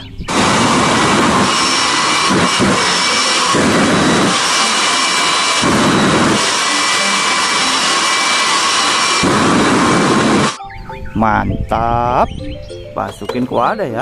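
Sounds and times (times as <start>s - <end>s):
jet engine roaring: 0.0s - 10.6s
high whistling whine: 0.0s - 12.3s.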